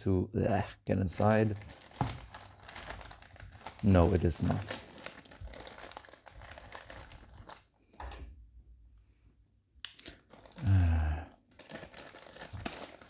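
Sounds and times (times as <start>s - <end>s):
plastic mailer bag crinkling: 1.1s - 7.7s, 10.2s - 10.8s, 11.5s - 13.0s.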